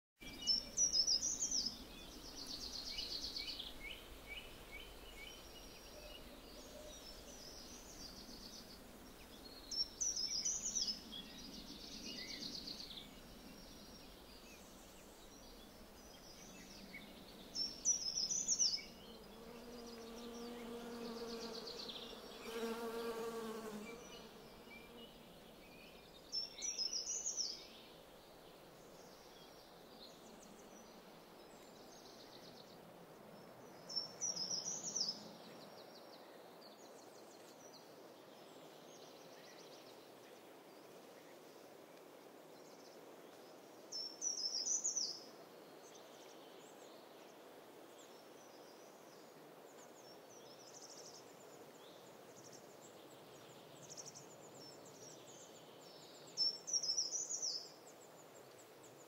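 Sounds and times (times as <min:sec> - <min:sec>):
songbirds singing: 0:00.2 - 0:59.0
bee buzzing: 0:19.5 - 0:24.4.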